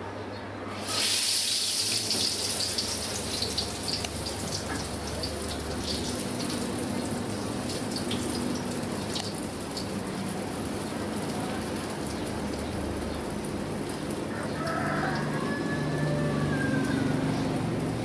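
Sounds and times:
corn kernels hissing and rustling: 0:00.8 - 0:15.5
light clicks of kernels: 0:02.2 - 0:14.2.

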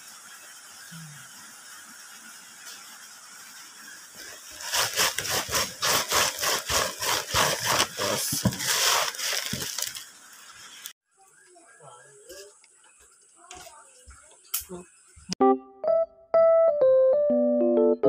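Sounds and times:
leafy greens rustling on tray: 0:04.6 - 0:10.9.

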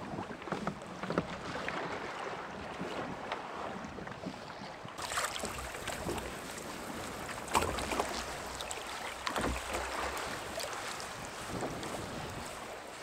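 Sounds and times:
water slapping against kayak hull: 0:00.0 - 0:13.0
wind on microphone: 0:09.4 - 0:13.0.

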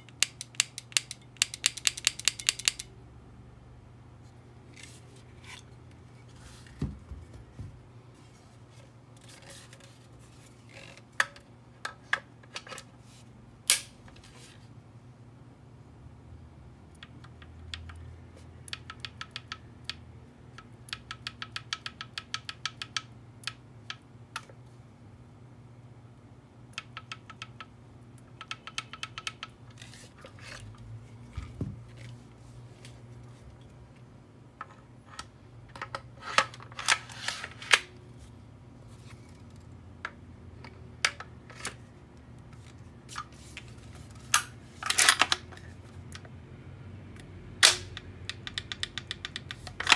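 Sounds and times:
gun parts clicking: 0:00.2 - 0:02.9.

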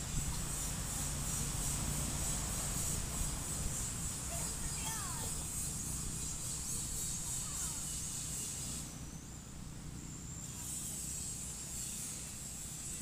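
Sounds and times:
wind rumble on microphone: 0:00.0 - 0:04.7
high hiss: 0:00.0 - 0:13.0.

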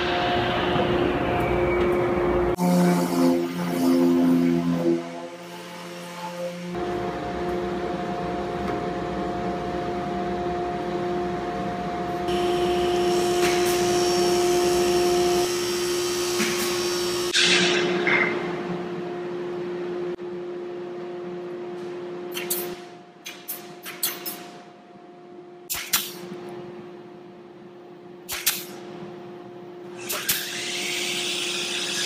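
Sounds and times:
machinery motor hum with whine: 0:00.0 - 0:17.4
table saw cutting plywood: 0:12.3 - 0:17.8, 0:30.0 - 0:32.0.

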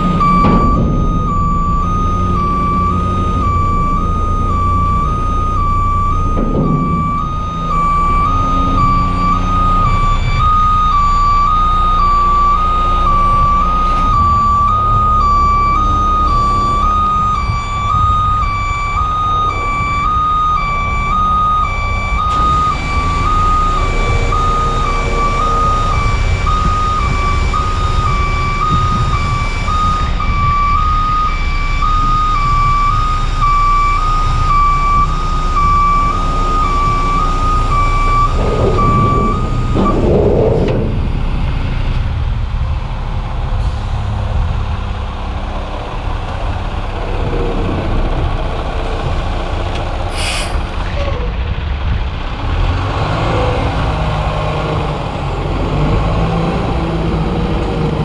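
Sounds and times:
two-tone warning alarm beeping: 0:00.0 - 0:41.5
diesel truck engine running: 0:00.0 - 0:58.0
air brakes hissing: 0:50.0 - 0:50.9.

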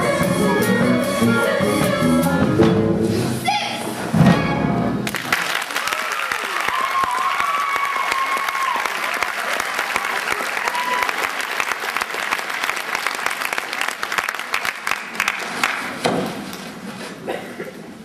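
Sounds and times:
audience applause and cheering: 0:05.0 - 0:16.0.

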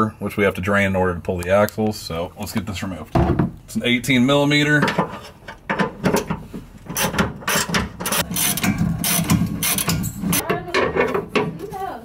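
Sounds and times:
hand ratchet clicking: 0:06.9 - 0:10.4.

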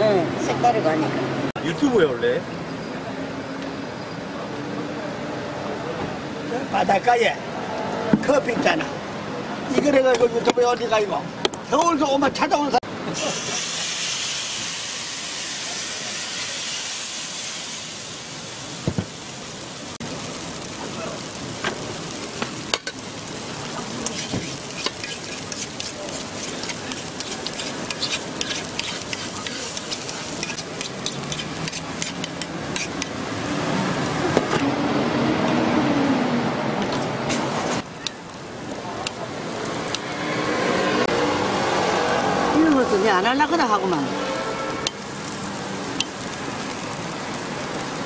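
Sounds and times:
batter sizzling in griddle mold: 0:13.1 - 0:34.6, 0:37.8 - 0:48.0.

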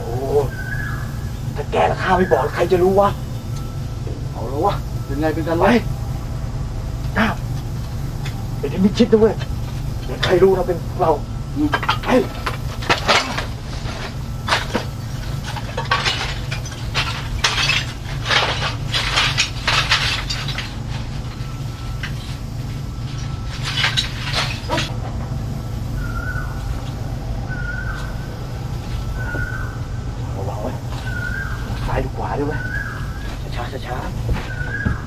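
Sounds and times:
steady low hum: 0:00.0 - 0:35.0
metal tool scraping earth: 0:11.7 - 0:25.0.

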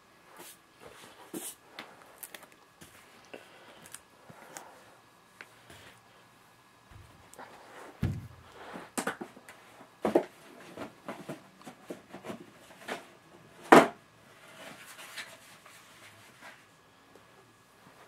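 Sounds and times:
plastic cases knocking and rubbing: 0:08.0 - 0:08.4.

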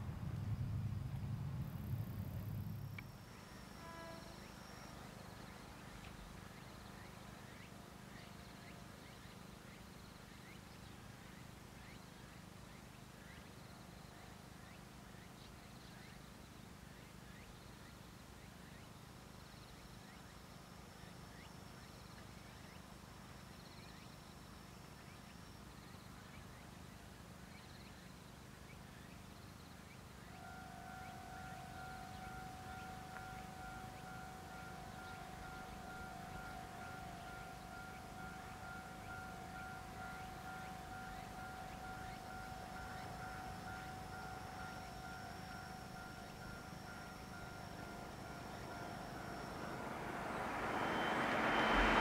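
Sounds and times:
low steady hum: 0:00.0 - 0:12.5, 0:30.1 - 0:52.0
insects chirping: 0:00.1 - 0:52.0
high steady trill: 0:30.5 - 0:52.0.

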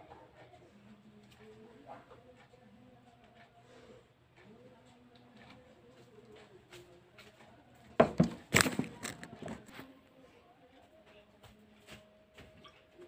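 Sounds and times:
phone handling knocks and scraping: 0:08.0 - 0:09.7.

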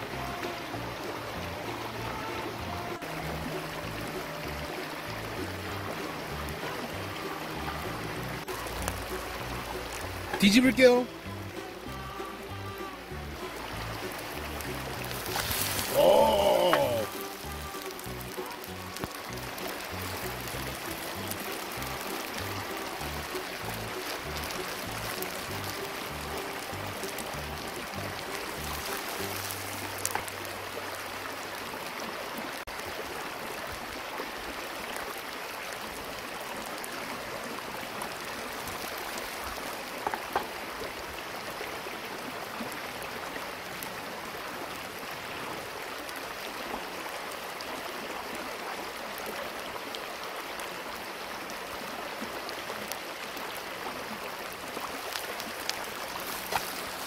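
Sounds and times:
oil popping: 0:03.0 - 0:31.2, 0:54.8 - 0:57.0
pancake sizzling in oil: 0:14.1 - 0:30.6, 0:55.0 - 0:57.0.

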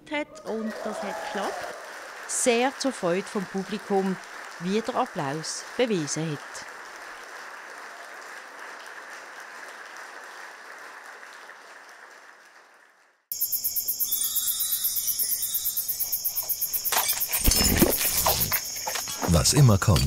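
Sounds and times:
audience applause: 0:00.3 - 0:13.3
fast high chirping: 0:13.4 - 0:19.2.

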